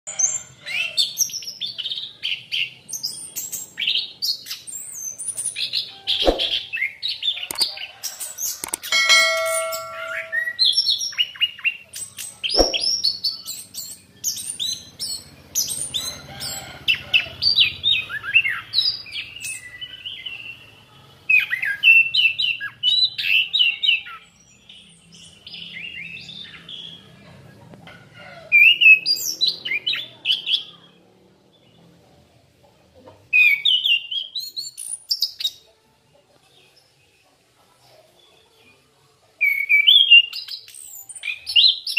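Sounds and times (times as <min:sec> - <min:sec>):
thrush singing chirps and trills: 0:00.1 - 0:20.6
sharp knocks: 0:06.2 - 0:06.6, 0:12.6 - 0:12.9.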